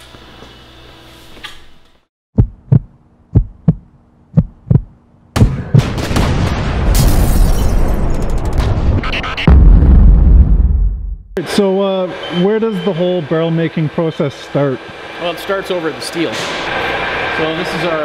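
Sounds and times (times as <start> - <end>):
heartbeats: 2.4 - 5.9
loud boom: 5.4 - 11.4.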